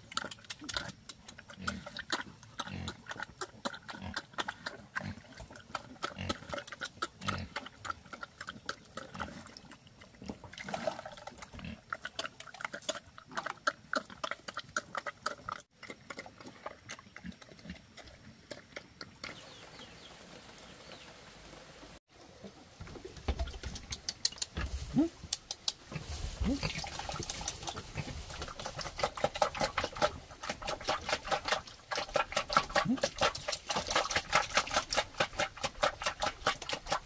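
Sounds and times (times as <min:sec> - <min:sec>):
sharp clicks: 0:23.7 - 0:24.6, 0:25.3 - 0:25.8.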